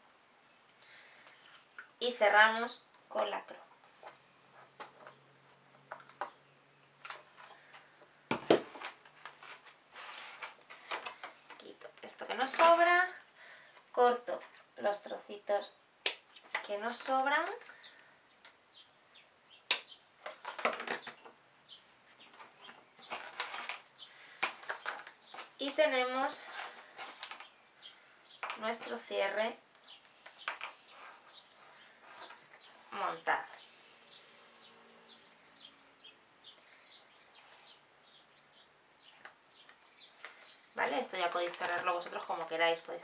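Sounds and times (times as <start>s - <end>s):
faint bird chirping: 17.6s - 41.2s.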